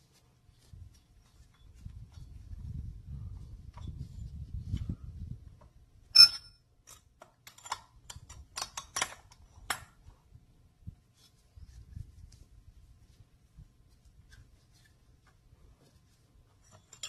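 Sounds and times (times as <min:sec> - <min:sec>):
gloved hands rustling: 0:00.0 - 0:02.8
metal parts clinking: 0:06.2 - 0:09.3.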